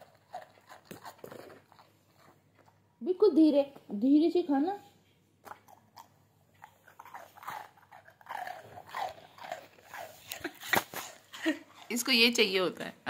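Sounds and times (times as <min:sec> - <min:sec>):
dog chewing crunchy rusk: 0:00.0 - 0:02.8, 0:05.5 - 0:12.4.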